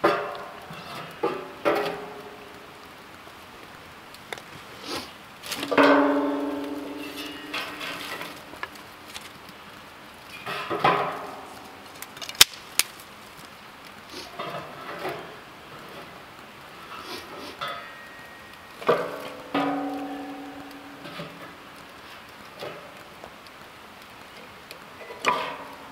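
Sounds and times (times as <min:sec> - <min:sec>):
stick scraping in metal fire pit: 0:06.6 - 0:09.4.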